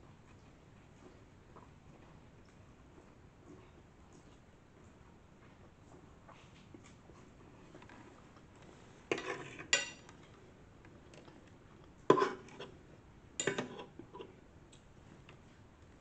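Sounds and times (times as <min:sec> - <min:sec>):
fork scraping a ceramic plate: 0:09.1 - 0:10.1, 0:12.1 - 0:12.8, 0:13.4 - 0:14.4.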